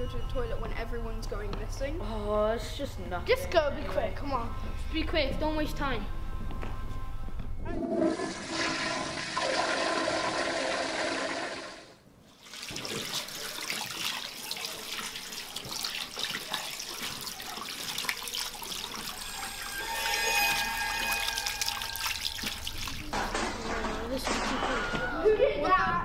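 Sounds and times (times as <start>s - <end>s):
toilet flushing: 7.9s - 25.4s
hands washing under water: 12.4s - 24.2s.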